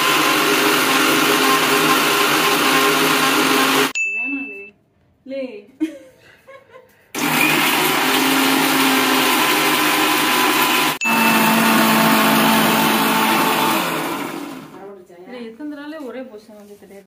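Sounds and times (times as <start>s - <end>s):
electric mixer grinder running: 0.0s - 4.0s, 7.2s - 14.8s.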